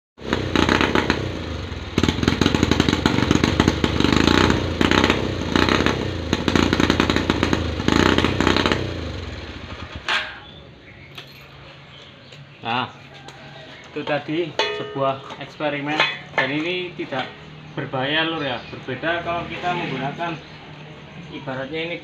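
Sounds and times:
motorcycle engine revving: 0.2 - 10.9.

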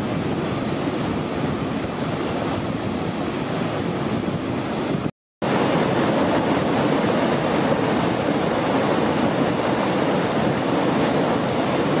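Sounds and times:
river rushing over boulders: 5.4 - 12.0.

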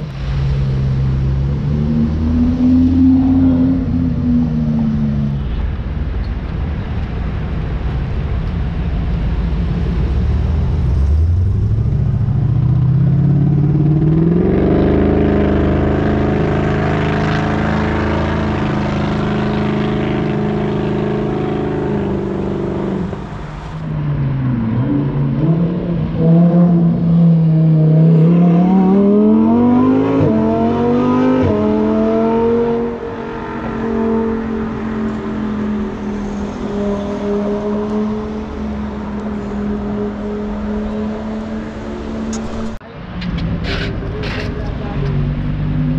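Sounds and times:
sports car engines revving: 0.0 - 45.9.

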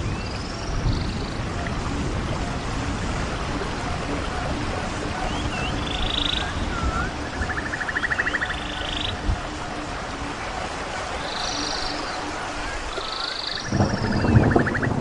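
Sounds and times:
babbling stream: 0.0 - 15.0
birds chirping: 5.1 - 9.6.

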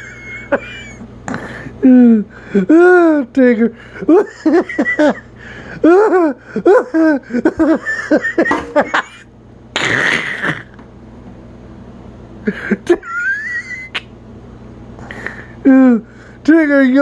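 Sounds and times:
person laughing: 0.0 - 3.1, 4.0 - 10.7, 12.4 - 14.1.

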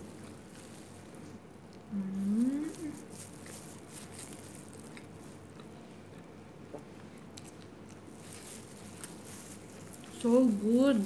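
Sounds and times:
person chewing food: 2.6 - 10.2.

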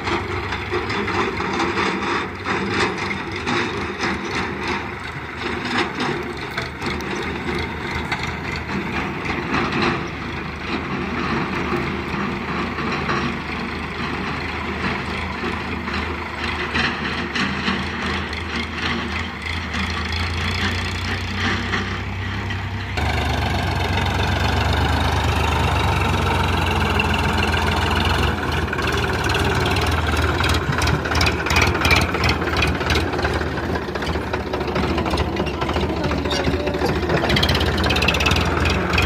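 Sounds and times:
tractor diesel engine running: 0.0 - 39.0
rapid clattering knocks: 27.4 - 39.0.

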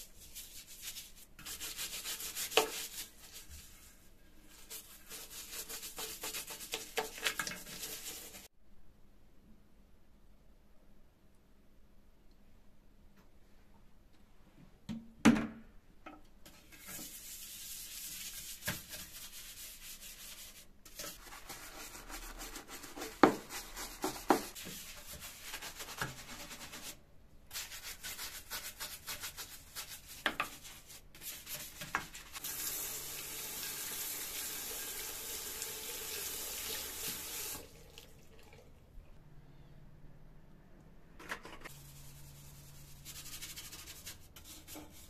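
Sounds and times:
scrubbing ceramic sink: 0.0 - 8.5, 16.5 - 32.7.

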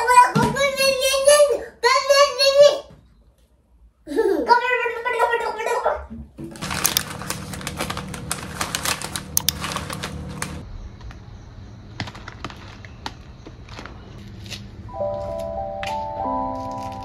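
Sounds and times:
plastic packet crinkling: 6.5 - 10.6, 12.0 - 14.0.

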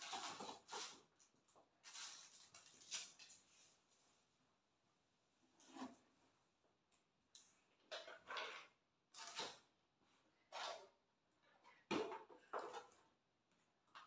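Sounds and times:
items rustling and knocking: 0.0 - 3.9, 10.6 - 14.0.

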